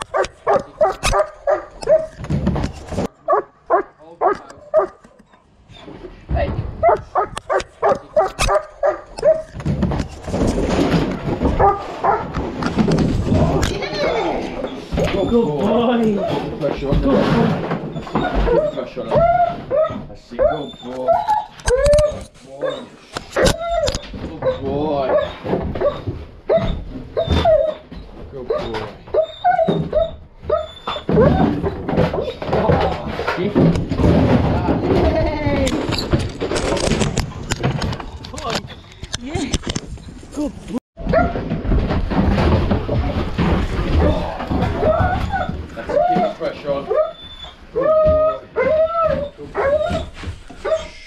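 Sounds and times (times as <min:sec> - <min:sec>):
dog barking: 0:00.1 - 0:02.2, 0:03.2 - 0:05.0, 0:06.8 - 0:09.5, 0:11.6 - 0:12.3, 0:18.5 - 0:21.3, 0:24.4 - 0:27.7, 0:28.5 - 0:31.4, 0:41.0 - 0:41.4, 0:50.6 - 0:51.0
dog whining and yipping: 0:17.8 - 0:32.4, 0:44.8 - 0:51.0.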